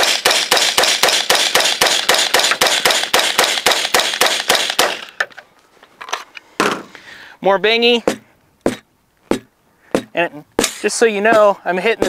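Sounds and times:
rifle firing rapidly: 0.0 - 5.1.

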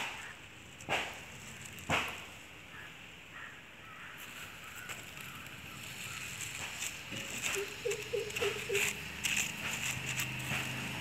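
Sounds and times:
stick scraping over dry leaves: 0.0 - 2.5, 4.0 - 11.0
light scratchy ticks: 4.2 - 11.0.

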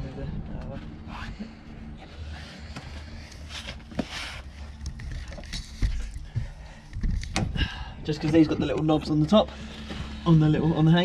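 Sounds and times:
rubber scraping and rustling: 2.0 - 7.4.

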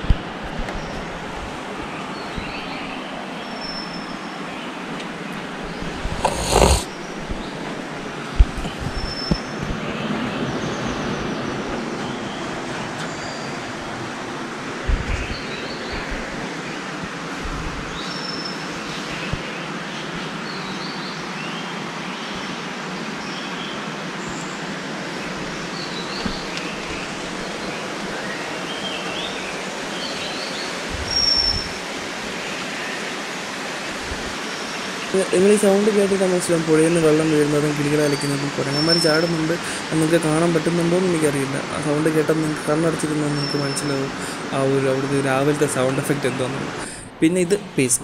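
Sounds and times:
birds chirping: 0.0 - 48.0
river water rushing: 11.5 - 36.5
low bumps: 14.6 - 18.0.

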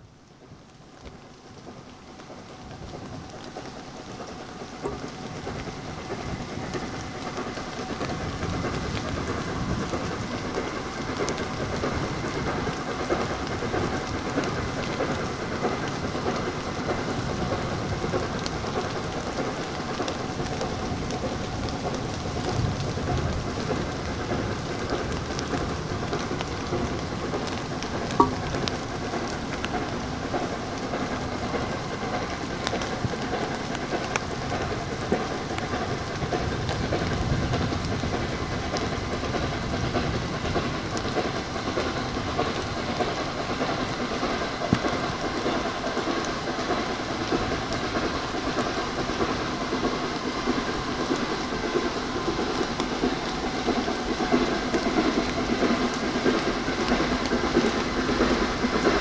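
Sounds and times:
steam train rushing: 0.0 - 59.0
short sharp knock: 28.2 - 28.6.

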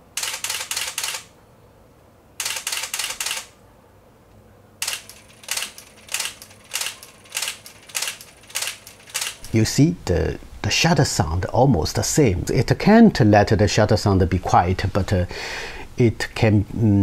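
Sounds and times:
camera shutter and film advance: 0.2 - 1.3, 2.4 - 3.5, 4.8 - 9.6.

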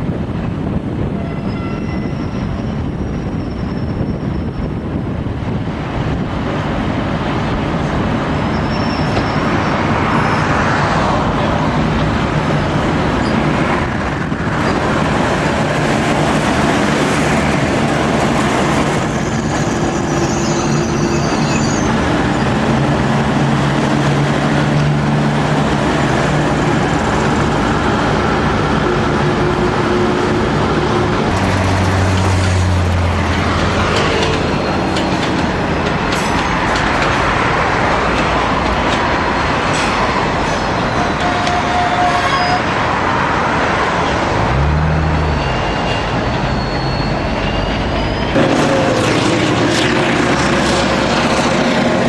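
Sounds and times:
train wheels on rails: 1.8 - 44.7, 45.4 - 52.0
diesel engine drone: 11.0 - 41.3, 42.9 - 52.0.

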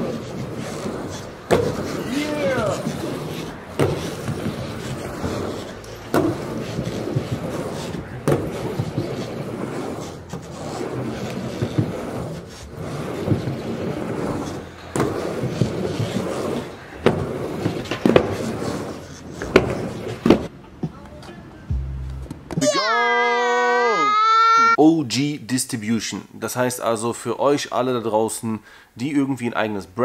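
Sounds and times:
skateboard clacking on ramp: 0.0 - 21.3
skateboard wheels rolling: 0.0 - 21.7.

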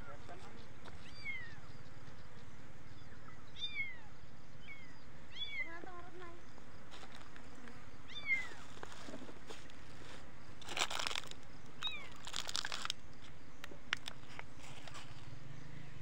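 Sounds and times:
rustling and crunching: 6.6 - 15.4.

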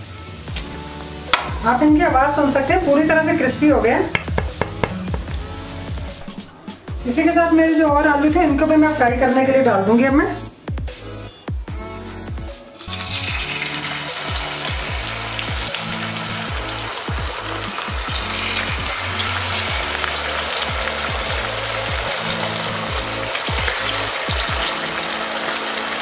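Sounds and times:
background music with bass line: 0.0 - 26.0
potatoes deep-frying in oil: 12.7 - 26.0.

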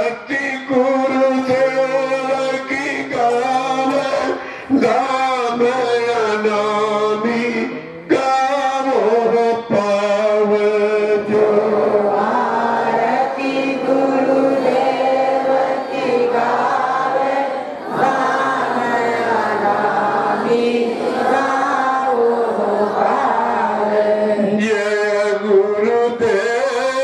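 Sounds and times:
group chanting: 11.1 - 24.8.

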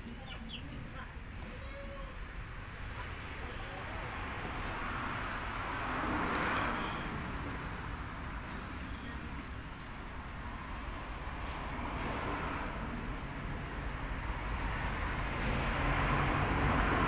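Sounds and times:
vehicle passing by: 3.1 - 8.5, 10.4 - 17.0.

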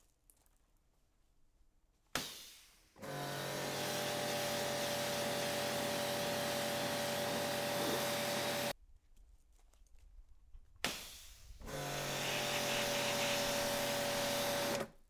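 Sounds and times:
pressure washer spraying: 2.4 - 8.7, 11.1 - 14.8.

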